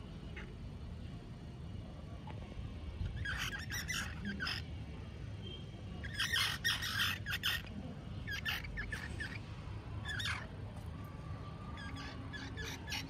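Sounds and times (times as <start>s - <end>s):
baby squirrels squeaking: 2.9s - 13.0s.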